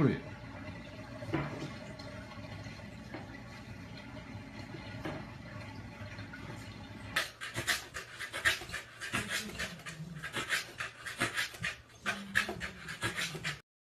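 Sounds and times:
dog panting: 7.2 - 13.6.

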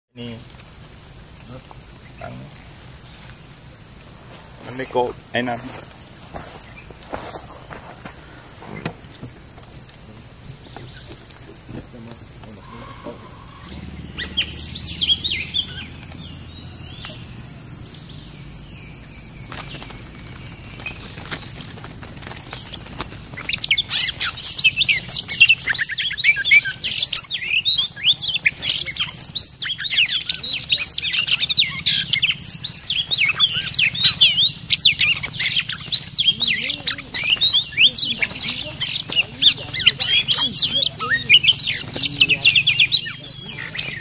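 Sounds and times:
birds calling: 0.2 - 44.0
fast whistles and chattering: 20.4 - 44.0.

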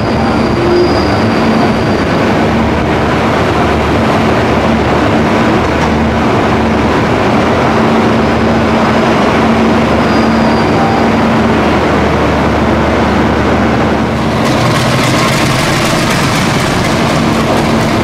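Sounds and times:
diesel locomotive idling: 9.4 - 18.0.

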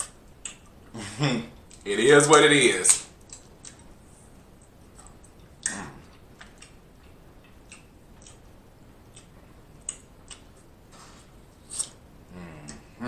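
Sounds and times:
lip smacks and wet clicks: 2.9 - 3.9, 4.6 - 10.7
mouth eating sounds: 5.0 - 10.6, 11.6 - 13.0.

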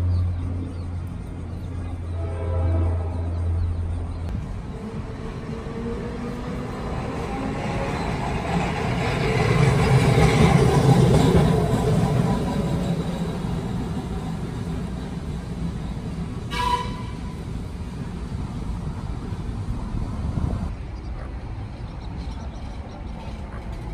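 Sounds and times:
streetcar rumbling on rails: 0.0 - 23.9
short sharp horn toot: 16.5 - 17.4.

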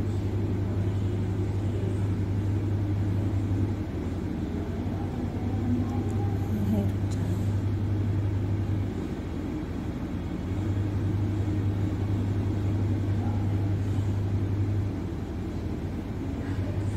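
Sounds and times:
steady low hum: 0.0 - 16.9.

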